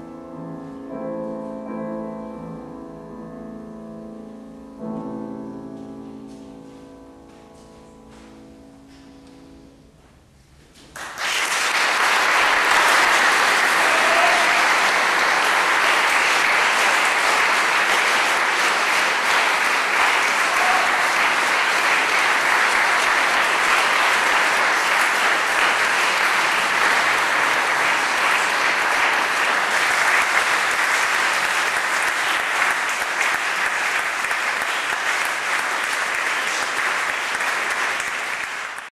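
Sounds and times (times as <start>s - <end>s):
audience applauding: 11.0s - 38.9s.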